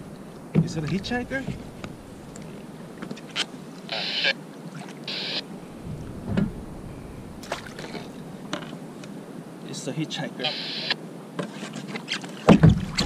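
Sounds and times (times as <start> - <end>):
dull thump: 5.8 - 8.7, 12.5 - 13.0.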